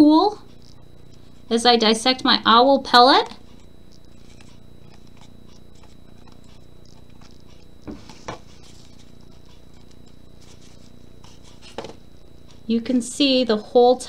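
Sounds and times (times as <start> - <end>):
steady low hum: 0.0 - 14.0
tweezers scratching: 0.5 - 1.5, 3.2 - 12.7.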